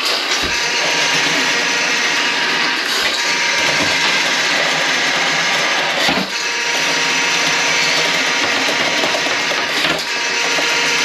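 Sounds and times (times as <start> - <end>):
drain-cleaning machine running: 0.0 - 11.0.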